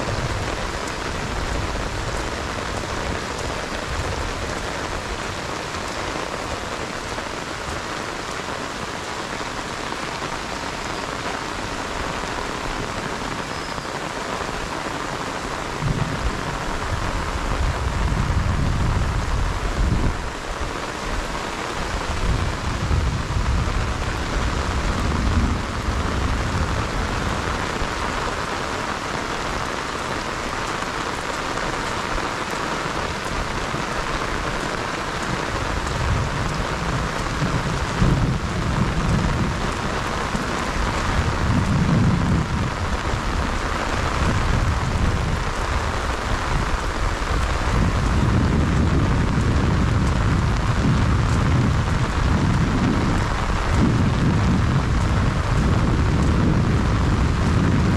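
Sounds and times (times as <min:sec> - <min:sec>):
heavy rain on water: 0:00.0 - 0:57.9
low rumbles: 0:22.0 - 0:28.1.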